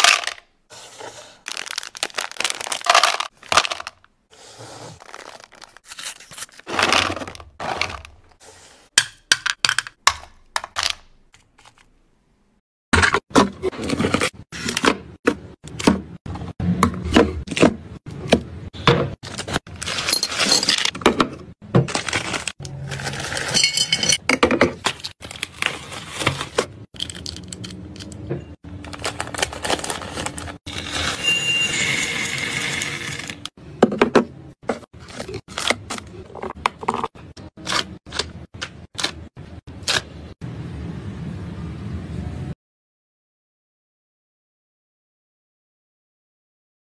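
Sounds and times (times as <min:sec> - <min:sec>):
sweets clattering into containers: 0:00.0 - 0:04.1, 0:04.9 - 0:08.2, 0:19.2 - 0:33.5
plastic wrappers crinkling: 0:01.4 - 0:04.1, 0:05.0 - 0:07.4, 0:21.9 - 0:23.6, 0:28.7 - 0:31.2.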